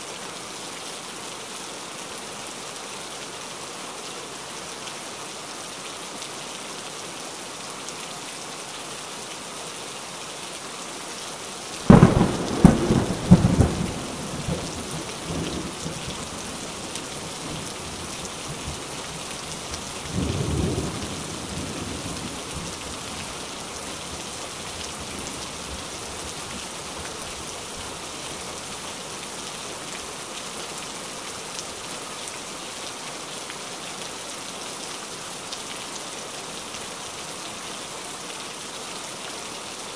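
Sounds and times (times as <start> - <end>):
heavy rain: 0.0 - 39.9
rumble of thunder: 11.9 - 16.4.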